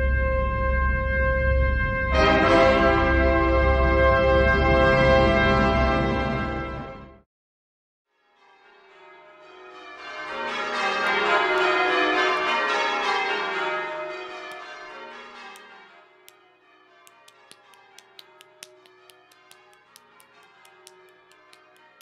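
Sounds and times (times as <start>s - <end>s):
sharp clock-like ticking: 17.1s - 22.0s.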